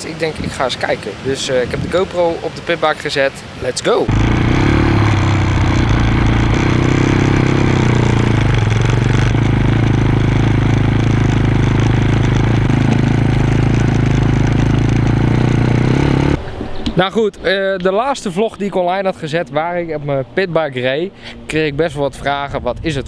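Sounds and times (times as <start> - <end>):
motorbike engine running: 4.1 - 16.4.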